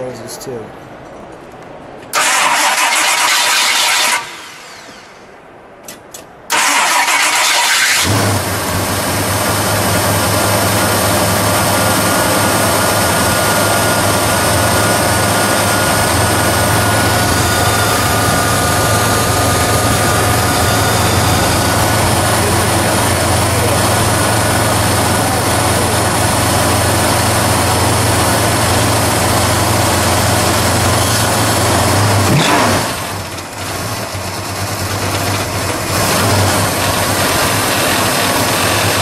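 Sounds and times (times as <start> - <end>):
starter motor cranking: 2.2 - 5.0, 6.5 - 8.3
car engine idling: 6.5 - 39.0.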